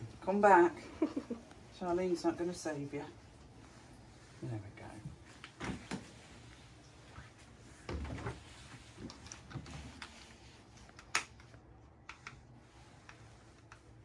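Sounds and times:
light clicks and taps: 9.0 - 12.4.

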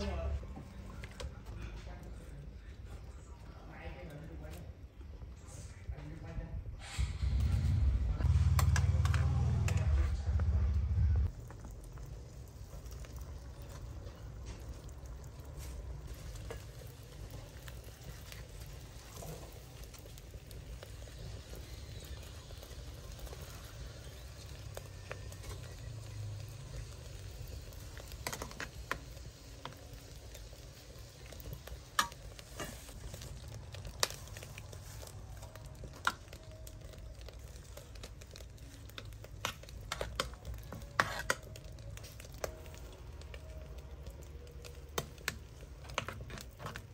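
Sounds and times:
soup simmering over fire: 0.0 - 46.9
low rumble: 6.4 - 12.6.

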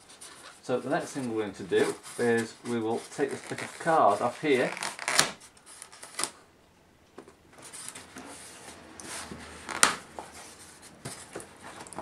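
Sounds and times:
card scraping on polystyrene: 0.0 - 6.4.

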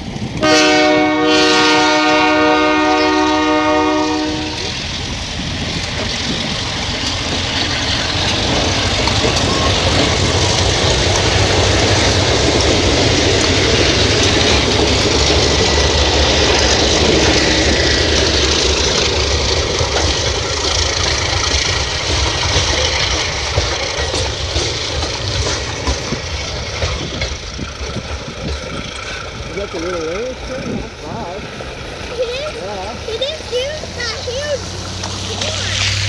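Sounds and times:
diesel locomotive engine drone: 0.0 - 36.0
train wheels clicking on rails: 0.0 - 36.0.

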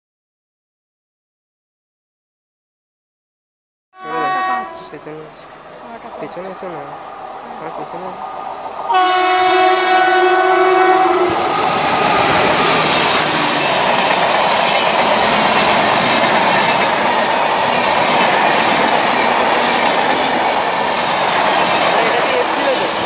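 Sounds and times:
electric locomotive horn: 4.0 - 6.2, 8.9 - 13.6
train coaches passing at high speed: 4.0 - 23.0.

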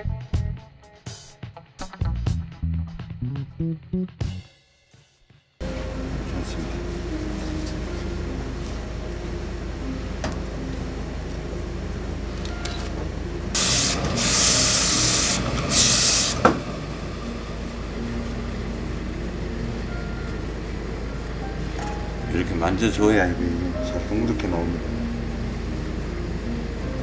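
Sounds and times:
steam iron hissing: 13.6 - 17.3.

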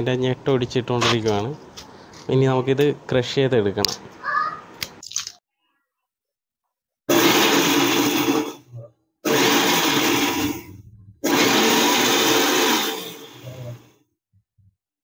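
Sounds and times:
mixer grinder motor: 7.1 - 8.6, 9.2 - 13.9.

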